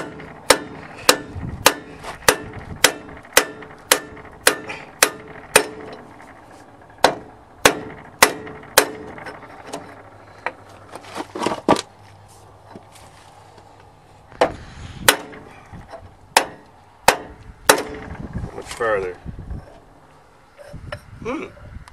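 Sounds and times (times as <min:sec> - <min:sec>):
sledgehammer striking metal cap: 0:00.0 - 0:06.1, 0:07.0 - 0:09.4, 0:15.0 - 0:15.5, 0:16.4 - 0:18.2.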